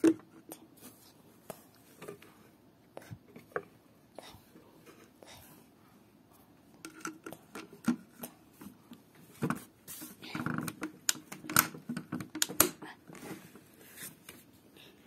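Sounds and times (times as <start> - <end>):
plastic clicks and knocks: 10.4 - 12.8.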